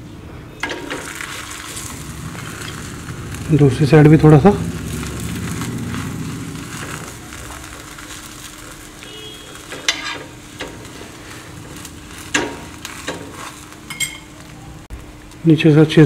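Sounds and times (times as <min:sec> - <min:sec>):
oil sizzling: 0:00.6 - 0:16.0
metal spoon scraping a pan: 0:05.0 - 0:14.4.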